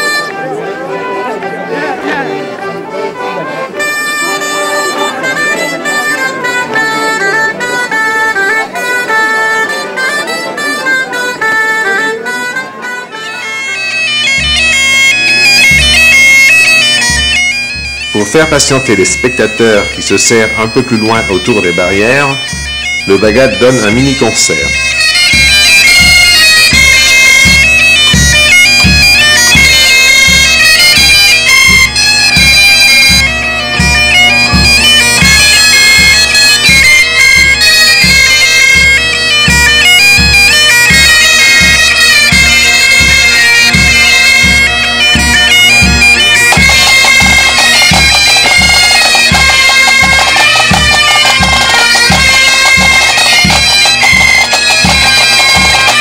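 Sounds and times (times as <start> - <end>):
bagpipes over a drone: 0.0 - 56.0
bombardes: 0.0 - 56.0
snare drums: 40.9 - 56.0.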